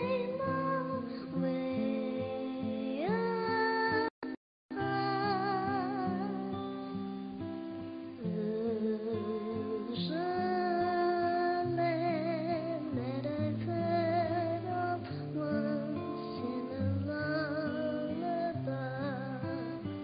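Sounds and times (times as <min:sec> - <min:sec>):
girl singing a gentle song: 0:00.0 - 0:04.1, 0:04.7 - 0:20.0.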